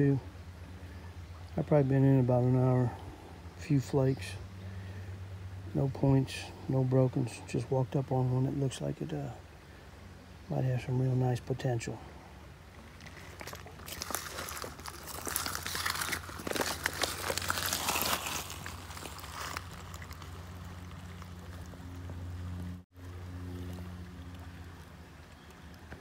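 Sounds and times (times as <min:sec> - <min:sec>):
steady low hum: 0:00.0 - 0:26.0
boots crunching on wet gravel: 0:13.0 - 0:22.2.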